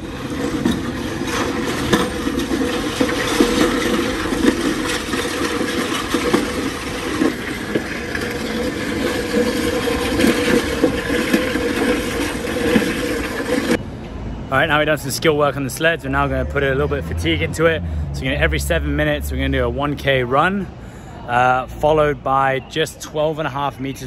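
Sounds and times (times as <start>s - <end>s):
sled scraping on stone: 0.0s - 13.8s.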